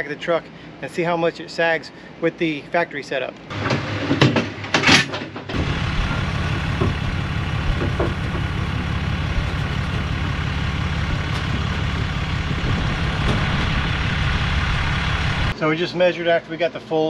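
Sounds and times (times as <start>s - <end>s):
truck engine idling: 5.5s - 15.6s.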